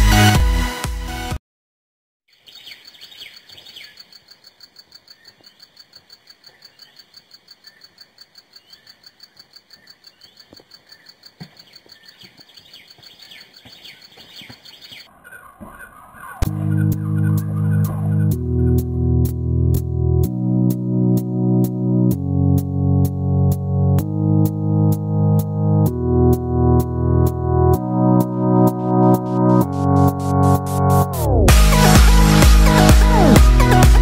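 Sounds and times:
electronic music: 0.0s - 1.4s, 16.4s - 34.0s
birds chirping: 2.3s - 18.9s
fast pulsing bird call: 8.6s - 18.8s.

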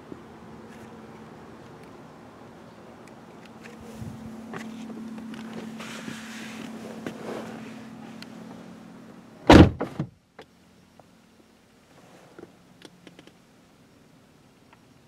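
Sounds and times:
car door shutting: 3.8s - 7.8s, 9.5s - 10.1s.

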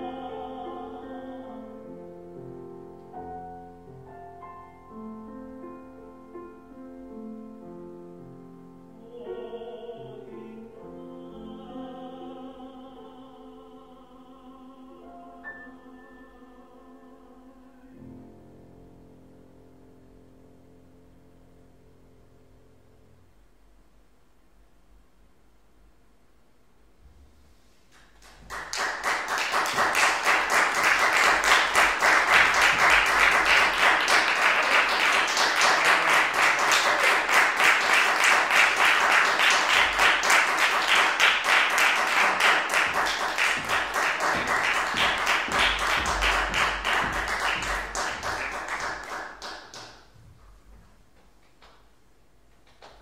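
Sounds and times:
audience applauding: 28.0s - 50.0s.

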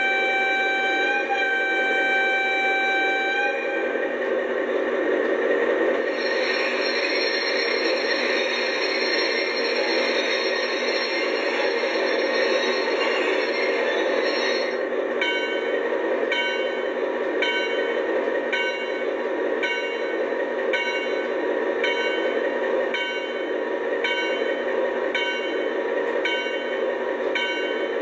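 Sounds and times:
bell ringing: 6.1s - 15.7s.

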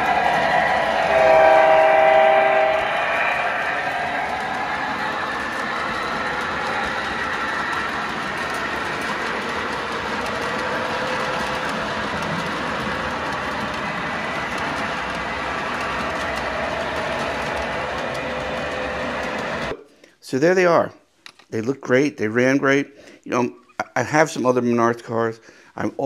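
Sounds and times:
toy train rumbling on track: 0.0s - 19.8s.

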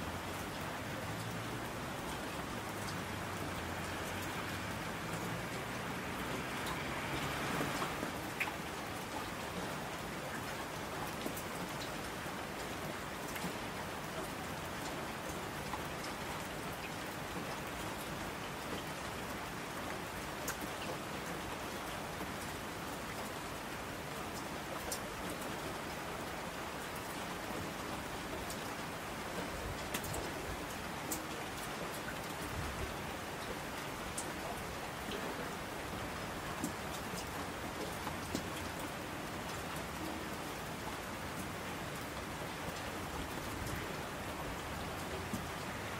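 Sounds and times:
steady rain falling: 0.0s - 45.9s.

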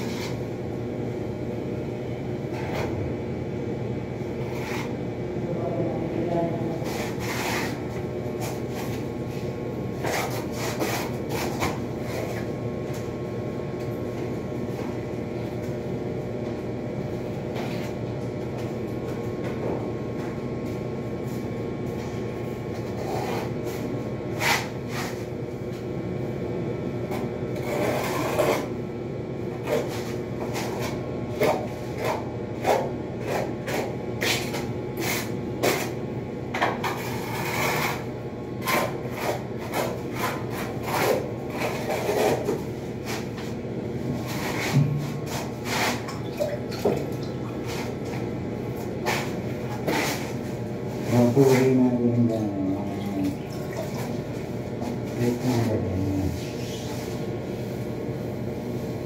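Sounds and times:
steady machine hum: 0.0s - 59.0s
hand tools scraping and rubbing: 4.5s - 4.9s, 6.8s - 7.8s, 10.0s - 12.4s, 22.9s - 23.8s, 24.4s - 25.2s, 27.6s - 28.7s, 38.6s - 43.5s, 44.2s - 46.1s, 49.0s - 51.8s, 55.0s - 57.2s.

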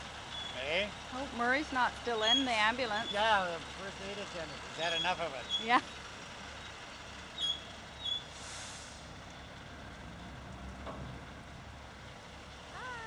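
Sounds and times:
low engine hum: 0.0s - 13.0s
brief hiss: 8.3s - 9.1s.

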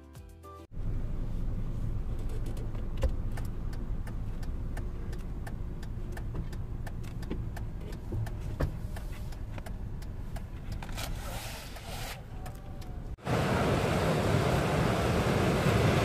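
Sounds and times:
road and engine rumble: 0.6s - 16.0s
light clicks and ticks: 2.1s - 11.0s.

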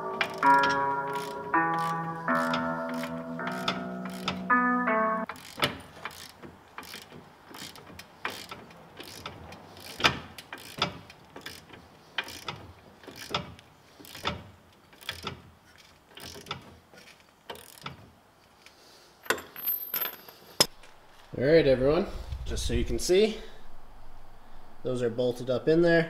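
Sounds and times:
socket ratchet clicking: 0.2s - 4.4s.

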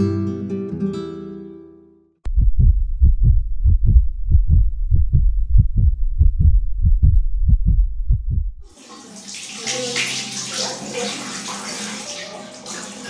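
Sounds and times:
heartbeat thumps: 2.3s - 8.7s.

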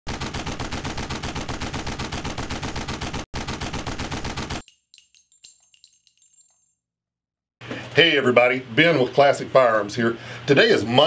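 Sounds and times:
rapid automatic gunfire: 0.1s - 4.6s
light metallic clinks: 4.6s - 6.9s.

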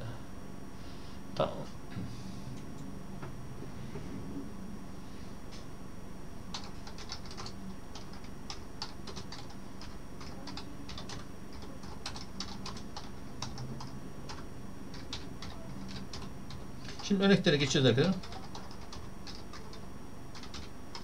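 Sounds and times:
keyboard typing: 6.5s - 17.2s, 18.0s - 21.0s.

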